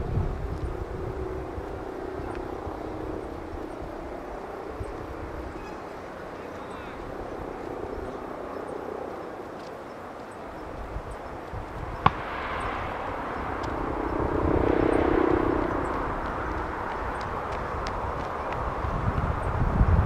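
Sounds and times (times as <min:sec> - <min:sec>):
jet engines rumbling and whining: 0:00.0 - 0:20.0.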